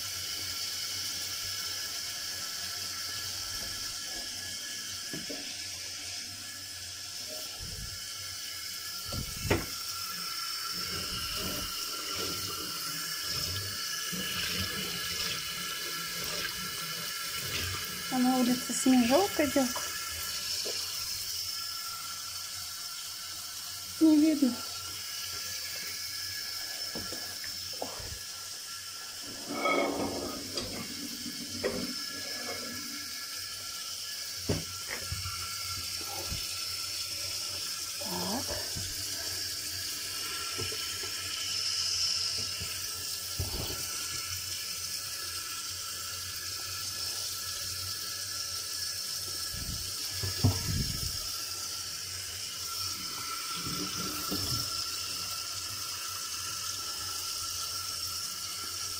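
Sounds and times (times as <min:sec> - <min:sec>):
tap running into sink: 0:05.0 - 0:05.6, 0:09.0 - 0:09.9, 0:18.5 - 0:20.9, 0:26.8 - 0:28.3, 0:29.2 - 0:33.3, 0:34.4 - 0:36.6, 0:40.4 - 0:41.5, 0:42.3 - 0:44.2, 0:49.4 - 0:51.3, 0:53.0 - 0:54.9
pan clattering against sink: 0:29.4 - 0:32.6.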